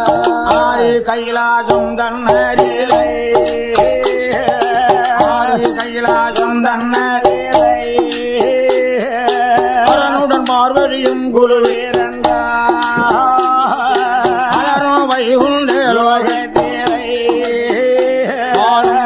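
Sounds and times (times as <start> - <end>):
percussion strokes: 0.0 - 19.0
wavering folk melody: 0.0 - 19.0.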